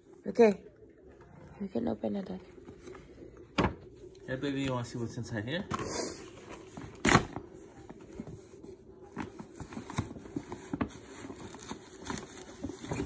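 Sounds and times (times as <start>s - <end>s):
paper rustling and crinkling: 6.2s - 13.0s.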